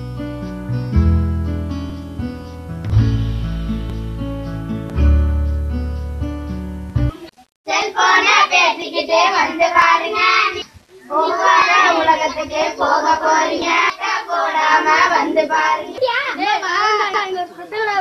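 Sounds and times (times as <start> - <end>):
acoustic guitar music: 0.0 - 7.5
children singing: 7.7 - 17.4.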